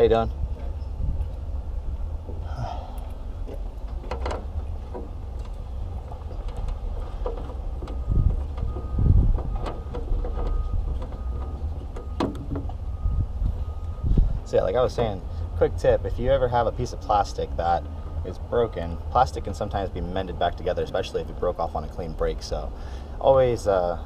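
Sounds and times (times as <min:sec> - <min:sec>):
wind rumble on microphone: 0:00.0 - 0:14.6
heavy low thumps: 0:07.7 - 0:09.6.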